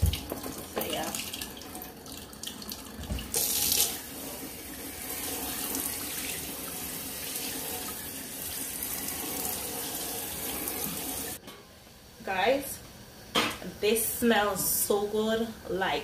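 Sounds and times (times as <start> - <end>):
tap water running into sink: 0.0 - 11.4.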